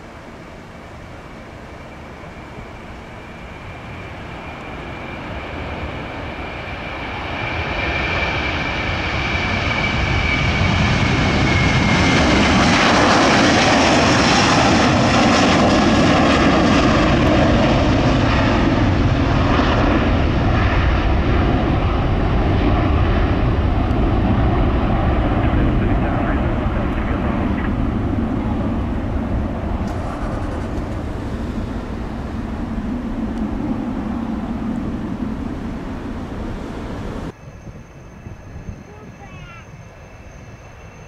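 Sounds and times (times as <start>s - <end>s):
jet engines at takeoff: 0.0s - 41.0s
high fan whine: 25.5s - 39.7s.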